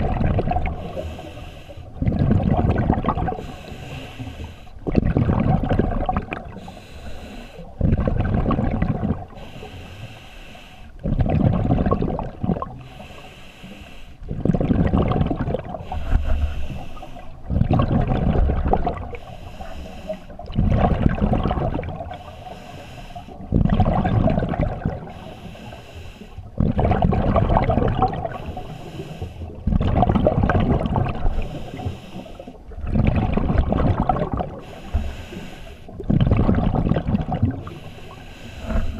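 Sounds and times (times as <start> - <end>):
exhaled bubbles rumbling: 0.0 - 9.6, 10.9 - 13.1, 14.2 - 22.5, 23.2 - 25.8, 26.4 - 38.9
regulator inhale hiss: 0.8 - 2.0, 3.4 - 4.8, 6.6 - 7.7, 9.3 - 11.0, 12.8 - 14.2, 15.8 - 17.4, 19.1 - 20.4, 22.1 - 23.4, 25.0 - 26.5, 28.3 - 29.6, 31.3 - 32.6, 34.6 - 35.9, 37.6 - 38.9.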